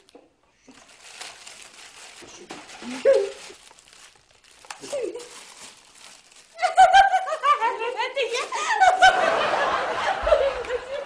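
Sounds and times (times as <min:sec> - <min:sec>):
woman laughing: 0:06.6 - 0:11.0.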